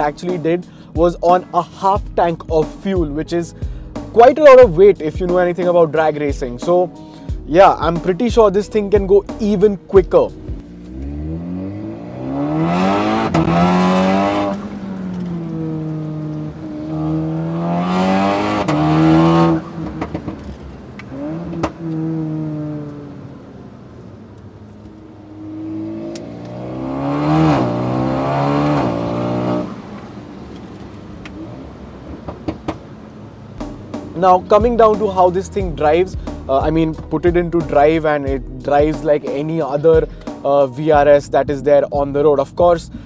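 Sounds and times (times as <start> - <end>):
car engine accelerating hard: 10.5 - 36.6
gearbox upshift: 18.4 - 23.0.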